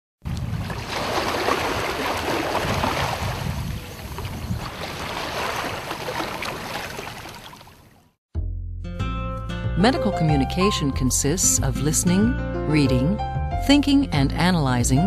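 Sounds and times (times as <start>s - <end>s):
water rushing and splashing: 0.4s - 8.0s.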